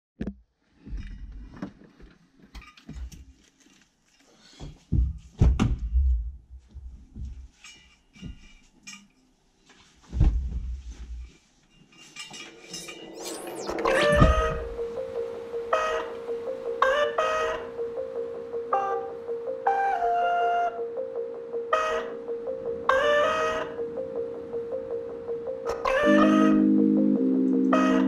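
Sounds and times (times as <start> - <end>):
music with rising sweep: 12.1 - 28.0.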